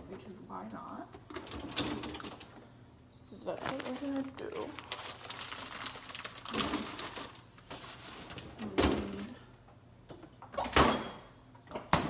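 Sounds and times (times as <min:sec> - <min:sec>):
plastic bag rustling: 0:03.4 - 0:08.8.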